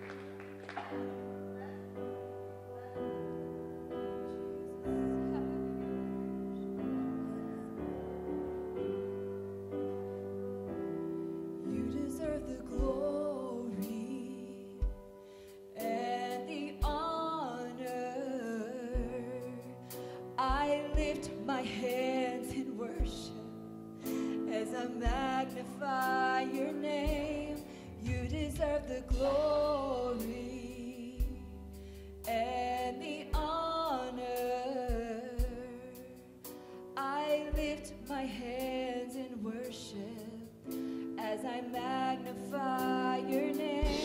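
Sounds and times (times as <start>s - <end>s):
piano chords: 0.0s - 44.0s
woman singing: 11.6s - 31.6s, 32.2s - 36.2s, 37.0s - 44.0s.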